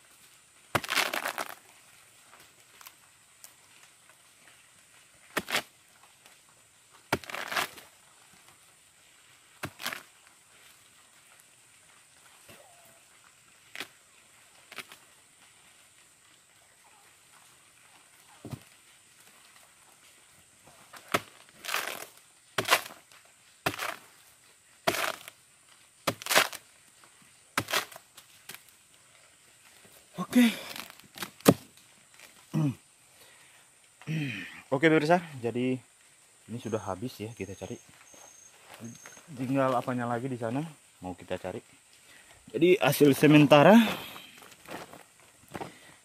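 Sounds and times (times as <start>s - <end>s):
wood splitting with crunching rasp: 0.7s - 1.6s, 5.3s - 5.7s, 7.1s - 7.9s, 9.6s - 10.1s, 14.7s - 15.0s, 20.7s - 24.1s, 24.8s - 25.4s, 26.0s - 26.6s, 27.6s - 28.7s, 30.4s - 32.4s
rotten wood crunching: 0.7s - 3.6s, 5.2s - 6.3s, 6.9s - 8.5s, 9.5s - 10.8s, 12.3s - 15.2s, 18.2s - 28.8s, 29.6s - 32.8s, 42.1s - 46.0s
machete chopping into wood: 0.8s - 1.6s, 5.3s - 5.7s, 7.1s - 7.8s, 9.6s - 10.1s, 21.0s - 23.0s, 23.6s - 24.1s, 24.8s - 25.3s, 26.0s - 26.6s, 27.6s - 28.0s, 30.7s - 31.7s.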